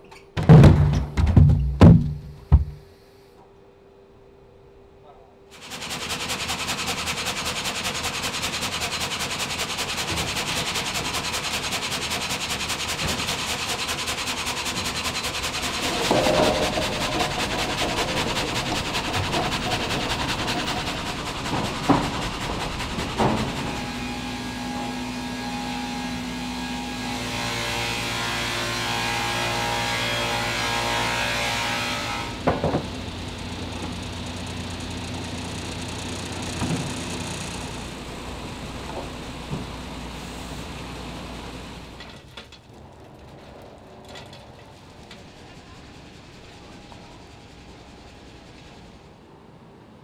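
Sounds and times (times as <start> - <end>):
sharp knocks: 0.4 - 2.9, 15.7 - 24.0
sawmill machinery rattling: 5.6 - 49.2
motor hum: 14.7 - 28.5, 32.3 - 44.0.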